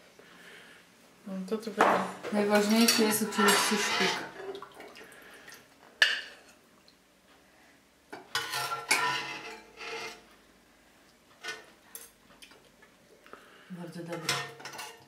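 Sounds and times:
metal spoon scraping a pot: 2.6s - 4.4s, 8.4s - 10.3s.

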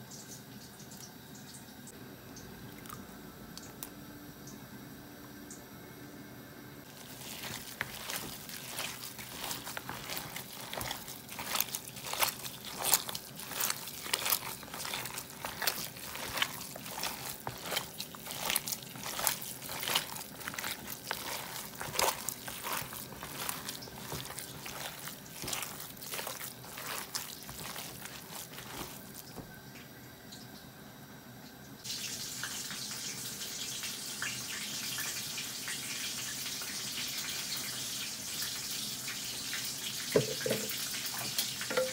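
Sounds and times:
hand kneading wet meat: 6.9s - 29.5s.

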